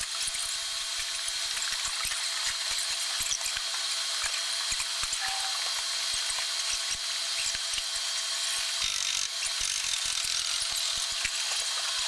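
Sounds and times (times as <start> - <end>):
thin whine: 3.0 - 12.0.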